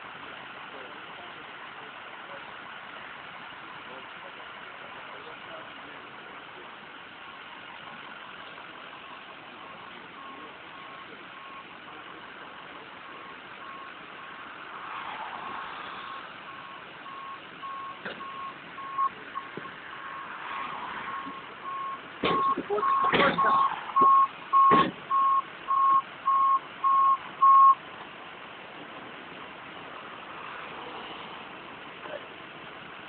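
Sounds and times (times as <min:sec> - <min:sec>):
engine and road hum: 0:00.0 - 0:33.0
vehicle backup alarm beeping: 0:08.0 - 0:14.5, 0:16.0 - 0:27.8
sharp knocks: 0:24.0 - 0:25.0.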